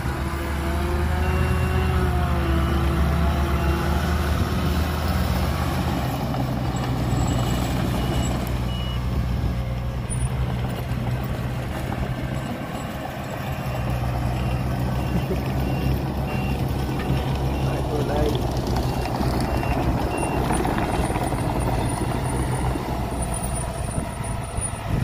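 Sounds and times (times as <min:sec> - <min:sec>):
diesel engines droning: 0:00.0 - 0:25.0
reversing alarm beeping: 0:01.1 - 0:04.0, 0:07.1 - 0:10.3, 0:12.3 - 0:18.0, 0:18.8 - 0:22.1.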